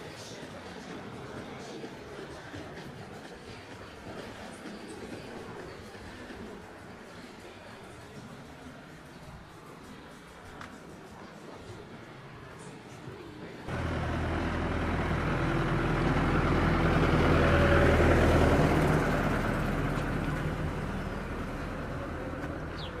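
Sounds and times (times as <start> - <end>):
road train engine passing: 9.8 - 23.0.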